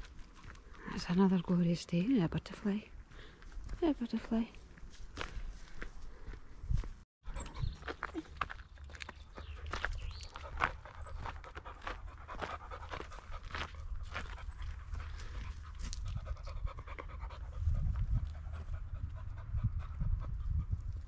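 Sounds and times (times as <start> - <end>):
dog panting: 10.3 - 20.8.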